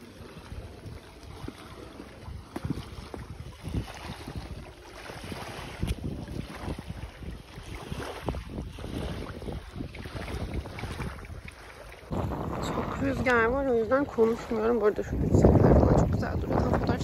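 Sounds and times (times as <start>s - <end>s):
wind buffeting microphone: 0.0s - 17.0s
low thumps: 12.1s - 17.0s.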